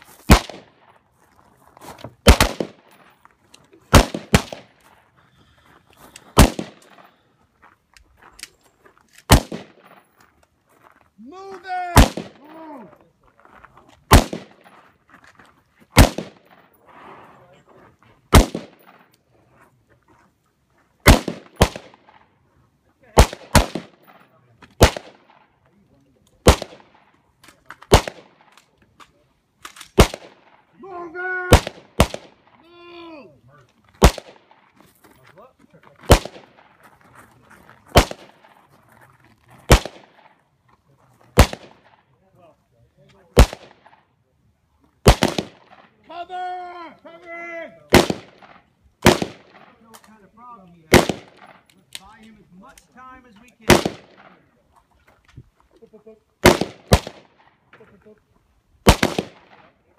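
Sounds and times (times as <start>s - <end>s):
gunshots with ring-out: 0.3s - 0.8s, 2.2s - 2.9s, 3.9s - 4.7s, 6.4s - 7.0s, 9.3s - 9.9s, 11.9s - 12.4s, 14.1s - 14.6s, 16.0s - 16.6s, 18.3s - 19.0s, 21.0s - 22.2s, 23.2s - 24.1s, 24.8s - 25.4s, 26.4s - 27.0s, 27.9s - 28.4s, 30.0s - 30.6s, 31.5s - 32.5s, 34.0s - 34.6s, 36.1s - 36.6s, 37.9s - 38.4s, 39.7s - 40.3s, 41.4s - 42.0s, 43.4s - 44.0s, 45.0s - 45.9s, 47.9s - 49.7s, 50.9s - 51.6s, 53.6s - 54.4s, 56.4s - 57.5s, 58.8s - 59.8s
gunshots with echo: 2.2s - 2.9s, 6.4s - 7.0s, 11.9s - 12.6s, 18.3s - 19.0s, 23.2s - 24.1s, 41.4s - 41.9s, 47.9s - 49.7s, 50.9s - 51.6s, 53.6s - 54.4s, 56.4s - 57.4s, 58.8s - 59.8s.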